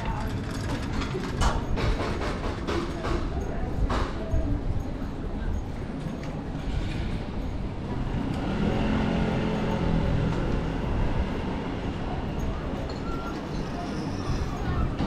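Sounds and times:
low rumble of street traffic: 0:00.0 - 0:15.0
passing vehicle engine hum: 0:07.0 - 0:12.8.

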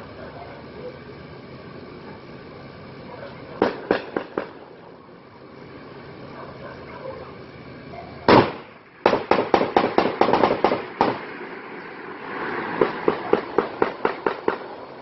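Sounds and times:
gunshots and rapid bursts: 0:08.3 - 0:11.2.

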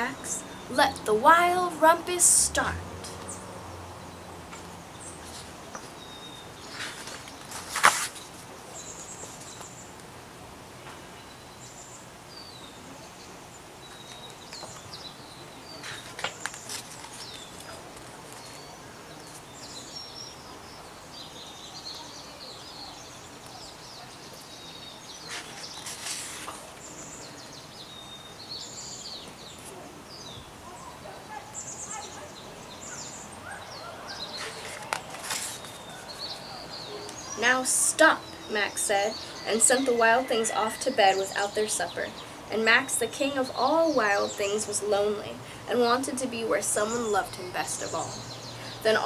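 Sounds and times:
small birds chirping: 0:00.0 - 0:10.1, 0:10.8 - 0:49.0
book pages turning: 0:06.7 - 0:08.4, 0:15.8 - 0:18.6, 0:25.3 - 0:26.7, 0:34.4 - 0:36.4.

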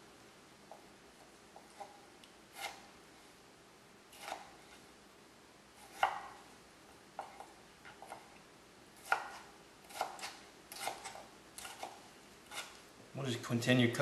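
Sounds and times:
knife slicing tomato: 0:01.5 - 0:02.9, 0:04.1 - 0:04.8, 0:05.8 - 0:06.4, 0:09.0 - 0:12.8.

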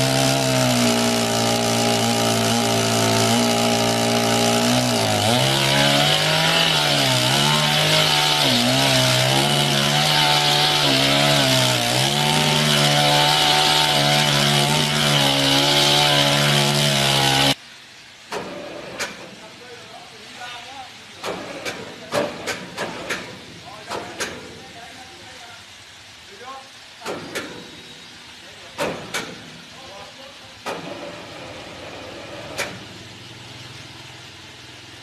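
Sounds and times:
chainsaw running: 0:00.0 - 0:17.6.

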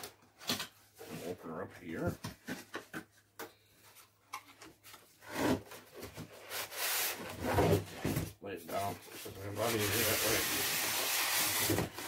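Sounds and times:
cardboard rubbing and scraping: 0:05.2 - 0:12.0.

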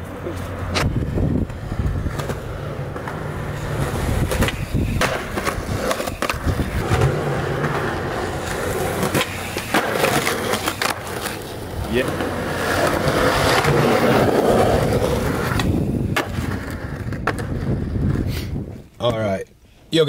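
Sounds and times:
skateboard clacking: 0:00.0 - 0:18.2
skateboard wheels rolling: 0:00.0 - 0:18.9.

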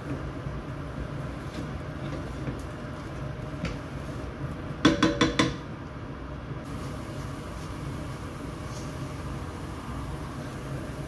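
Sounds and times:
spatula knocking metal saucepan: 0:04.8 - 0:05.6.

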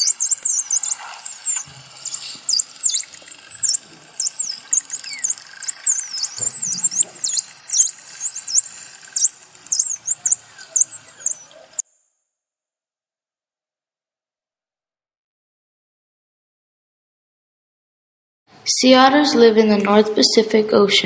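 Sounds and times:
dolphins whistling: 0:00.0 - 0:11.8.

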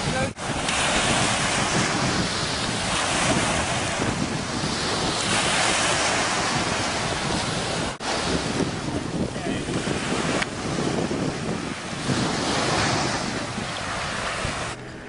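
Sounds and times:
ocean surf washing ashore: 0:00.0 - 0:15.0
wind buffeting microphone: 0:00.0 - 0:15.0.

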